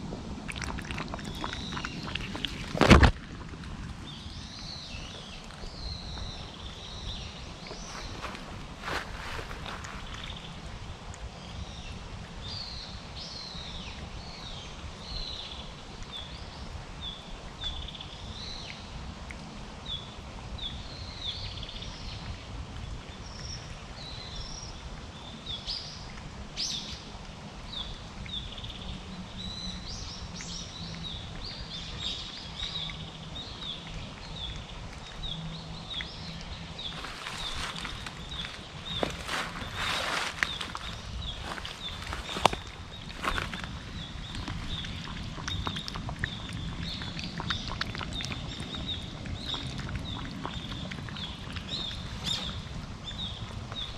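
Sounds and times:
low outdoor rumble: 0:00.0 - 0:53.9
small birds chirping: 0:04.0 - 0:10.8, 0:27.7 - 0:53.9.

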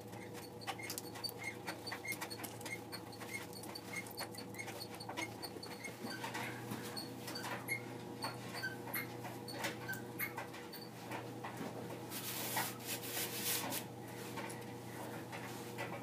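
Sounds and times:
paper sliding on foam board: 0:12.1 - 0:13.8.

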